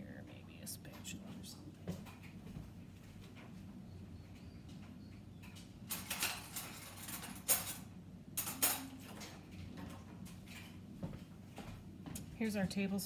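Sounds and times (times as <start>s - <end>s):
utensils scraping and clinking: 5.9s - 10.8s.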